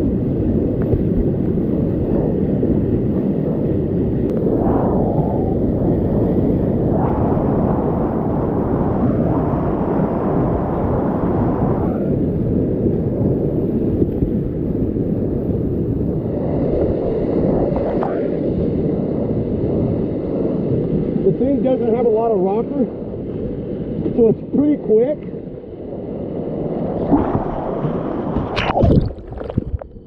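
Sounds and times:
water splashing camera: 0:27.0 - 0:30.0.

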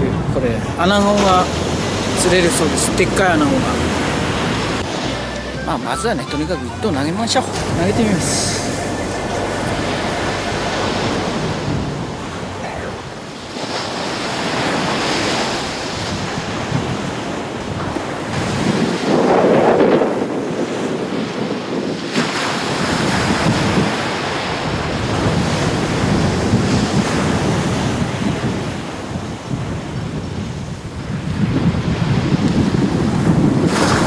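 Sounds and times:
wind buffeting microphone: 0:07.6 - 0:34.0.

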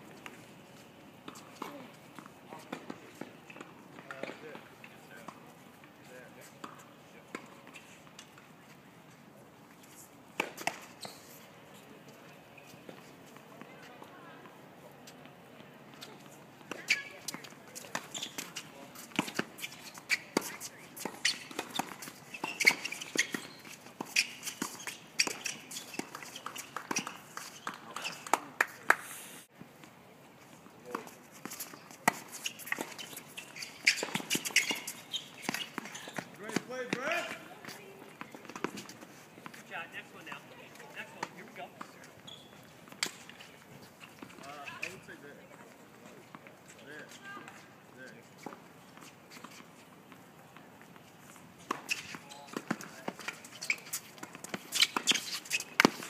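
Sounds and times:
tennis ball bouncing on court: 0:01.2 - 0:04.7, 0:10.4 - 0:10.9, 0:15.9 - 0:28.7, 0:31.4 - 0:39.6, 0:51.7 - 0:56.0
players' footsteps: 0:29.7 - 0:56.0
balls bouncing on hard court: 0:31.6 - 0:39.6, 0:51.7 - 0:56.0.

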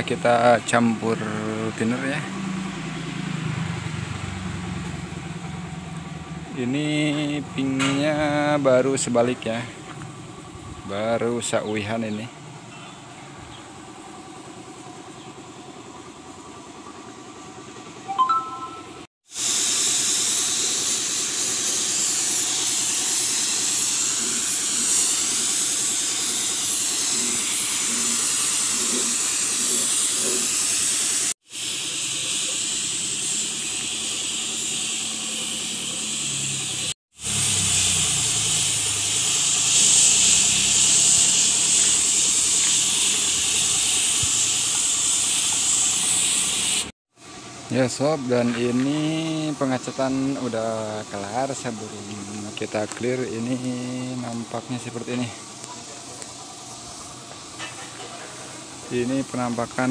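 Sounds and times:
spray gun hissing: 0:19.3 - 0:46.9.

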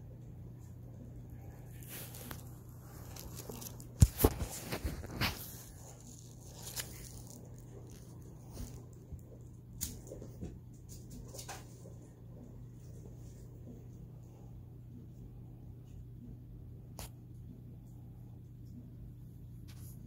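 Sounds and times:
steady low hum: 0:00.0 - 0:20.0
handling rustling: 0:01.6 - 0:10.4.

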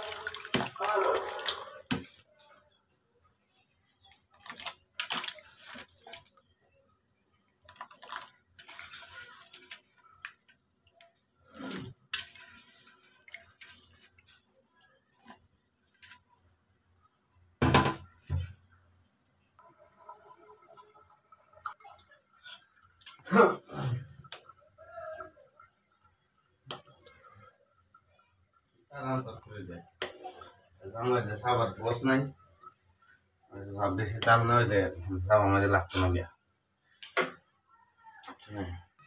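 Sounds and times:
pieces splashing into liquid: 0:00.0 - 0:02.2, 0:04.0 - 0:06.6, 0:07.5 - 0:14.1.

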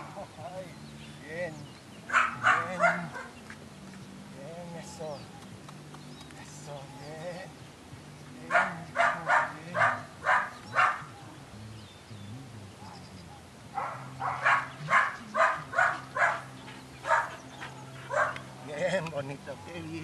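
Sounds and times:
puppy barking: 0:02.1 - 0:03.4, 0:08.5 - 0:11.2, 0:13.8 - 0:18.5.

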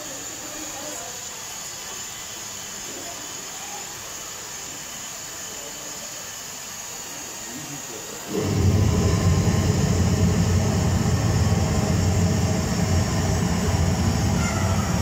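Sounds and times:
jet engine hiss and whine: 0:07.1 - 0:15.0.

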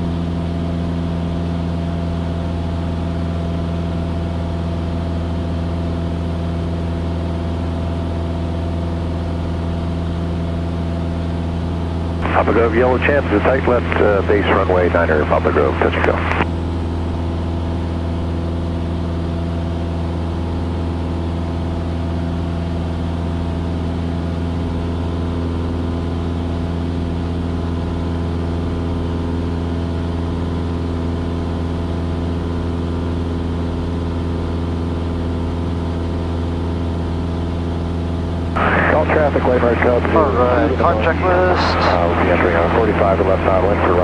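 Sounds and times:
aircraft engine droning: 0:01.7 - 0:28.5, 0:37.0 - 0:44.0.

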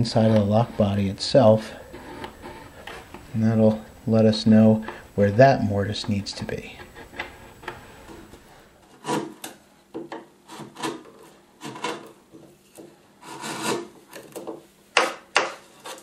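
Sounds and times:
marking tool scratching wood: 0:00.0 - 0:09.5, 0:10.5 - 0:12.1, 0:13.2 - 0:13.9.

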